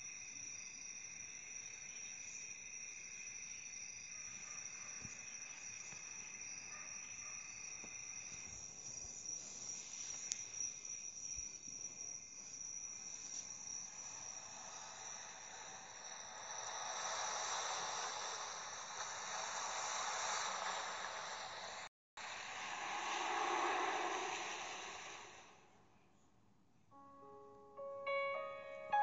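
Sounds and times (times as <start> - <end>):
high-pitched ringing tones: 26.9 - 29.0.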